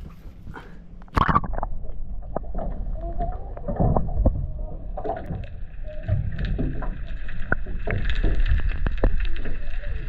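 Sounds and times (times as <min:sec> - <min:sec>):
underwater low rumble: 0:00.0 - 0:10.0
sharp clicks and crackles: 0:05.0 - 0:10.0.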